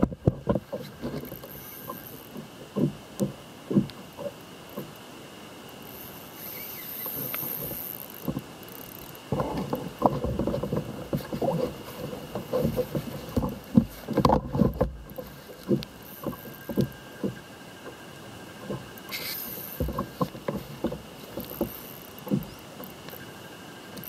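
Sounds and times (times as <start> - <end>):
knocks and bumps on kayak hull: 0.0 - 1.2, 2.3 - 4.9, 9.3 - 17.4, 19.8 - 22.6.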